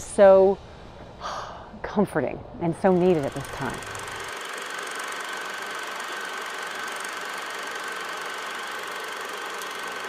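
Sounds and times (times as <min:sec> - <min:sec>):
film projector whirring and clattering: 0:02.7 - 0:10.0.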